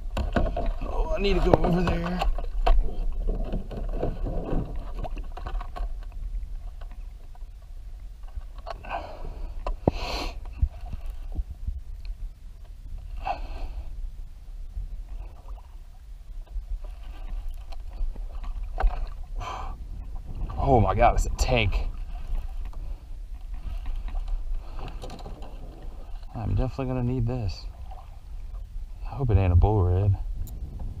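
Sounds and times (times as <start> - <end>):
dull thumps from kayak hull: 0.0 - 5.9
water splashes: 0.0 - 11.8, 15.0 - 29.6
low rumble: 10.4 - 31.0.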